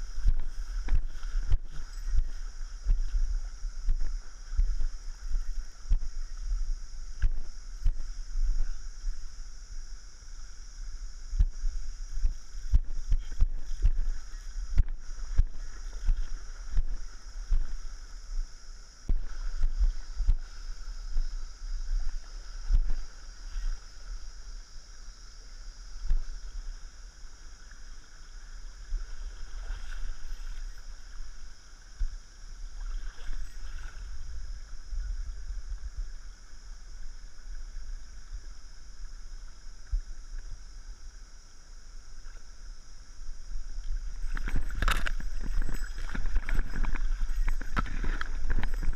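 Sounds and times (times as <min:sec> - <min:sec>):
shallow stream flowing: 0:00.0 - 0:48.9
water sloshing: 0:44.1 - 0:48.9.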